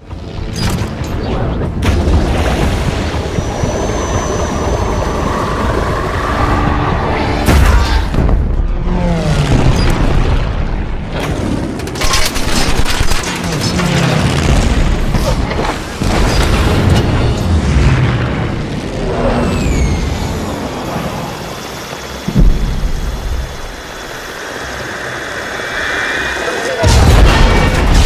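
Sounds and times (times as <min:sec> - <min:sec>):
dense rumble: 0:00.0 - 0:28.0
heavy explosion booms: 0:26.8 - 0:28.0.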